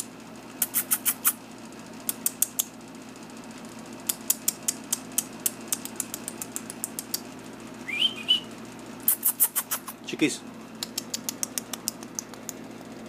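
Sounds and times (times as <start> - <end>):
puppy claws clicking on tile: 0.6 - 1.4, 2.1 - 2.7, 4.1 - 7.3, 10.8 - 12.6
puppy squeak: 0.6 - 1.4, 9.1 - 10.0.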